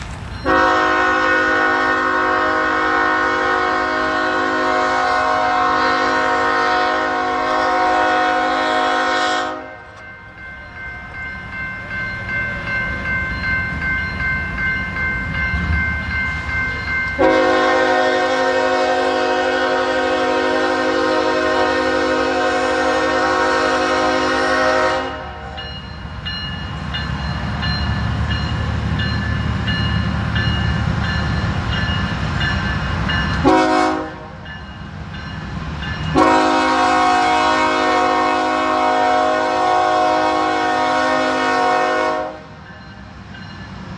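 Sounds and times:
locomotive air horn blasts: 0:00.4 - 0:10.0, 0:17.2 - 0:25.7, 0:33.4 - 0:34.4, 0:36.1 - 0:42.6.

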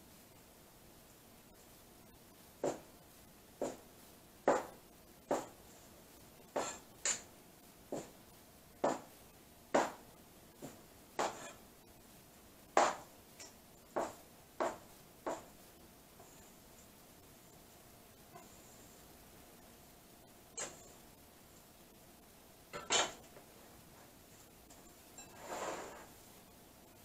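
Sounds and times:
knife chopping on plastic board: 0:02.6 - 0:02.9, 0:03.6 - 0:03.8, 0:04.5 - 0:05.6, 0:06.6 - 0:07.2, 0:07.9 - 0:08.2, 0:08.8 - 0:09.1, 0:09.7 - 0:10.0, 0:10.6 - 0:11.6, 0:12.8 - 0:13.1, 0:13.9 - 0:15.5.

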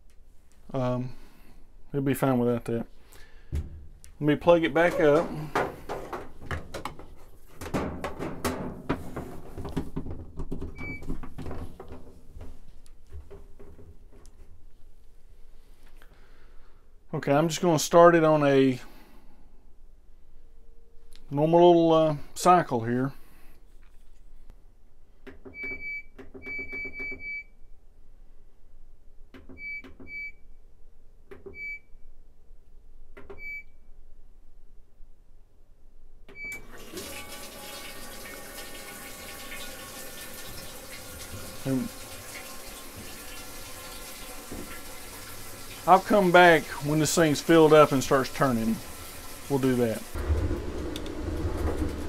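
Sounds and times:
handling knocks and clatter: 0:04.9 - 0:14.4.

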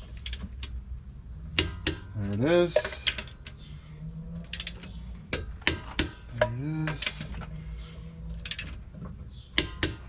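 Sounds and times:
ratchet clicks: 0:00.1 - 0:00.8, 0:04.4 - 0:06.2, 0:08.4 - 0:08.7.

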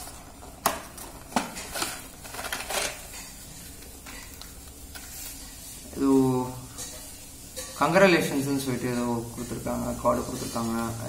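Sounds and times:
plastic tray rustling: 0:00.0 - 0:05.6.

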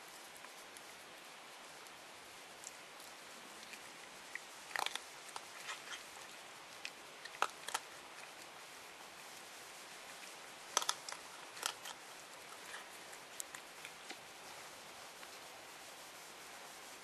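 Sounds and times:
animal crunching dry food: 0:02.6 - 0:14.6.

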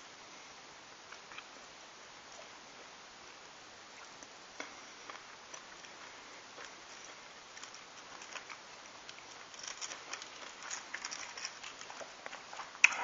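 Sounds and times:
meat tearing crackles: 0:07.4 - 0:13.0.

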